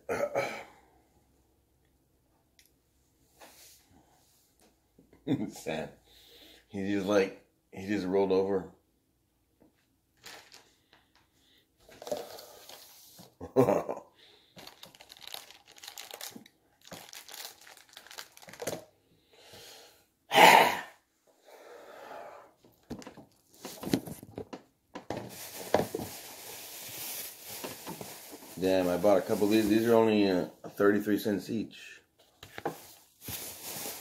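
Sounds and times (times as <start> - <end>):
plastic packaging crinkling: 10.2 - 10.9, 14.6 - 18.9, 22.9 - 30.0, 32.6 - 34.0.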